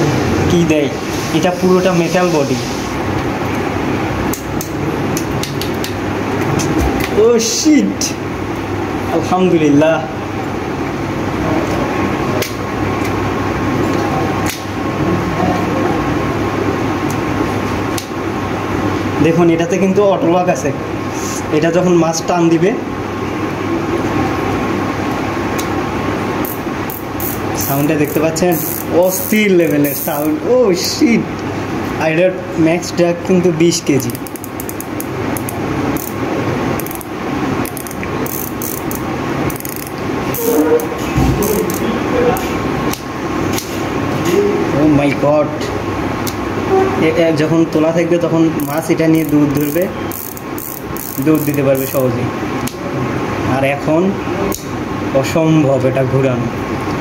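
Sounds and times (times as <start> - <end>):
room hum: 0.0 - 57.0
fishing reel whirring: 26.4 - 30.4, 34.1 - 36.2, 36.8 - 41.9, 48.6 - 52.1
sharp clicks: 36.8 - 40.0.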